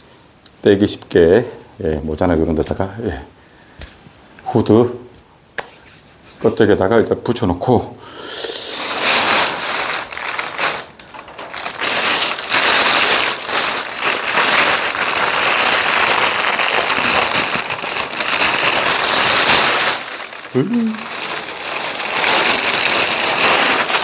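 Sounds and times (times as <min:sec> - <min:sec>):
plastic bag crinkling: 0:08.6 - 0:24.0.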